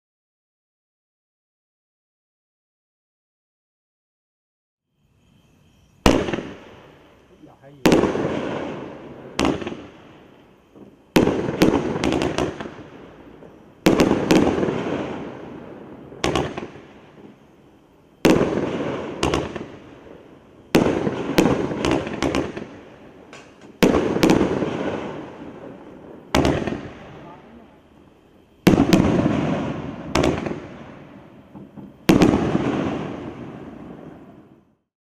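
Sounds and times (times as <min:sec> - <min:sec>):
firework bangs with echo: 0:06.0 - 0:17.4, 0:18.2 - 0:27.7, 0:28.6 - 0:34.7
firework pops: 0:09.4 - 0:09.9, 0:16.2 - 0:17.3, 0:18.2 - 0:19.8, 0:20.8 - 0:24.9, 0:26.3 - 0:26.9, 0:28.7 - 0:30.7, 0:31.5 - 0:33.2.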